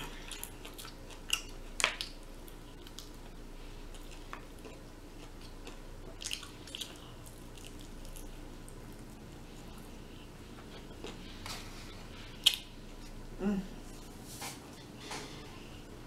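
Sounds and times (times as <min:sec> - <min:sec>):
chewing and tearing chicken: 0:00.0 - 0:11.4.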